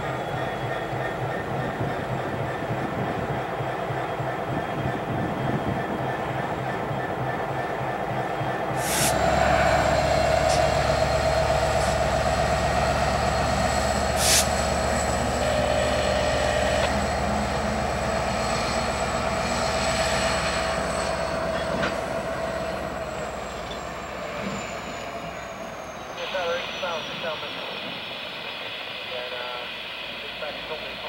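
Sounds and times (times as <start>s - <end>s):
diesel locomotive engine drone: 0.0s - 31.0s
wheel squeal: 23.5s - 26.2s.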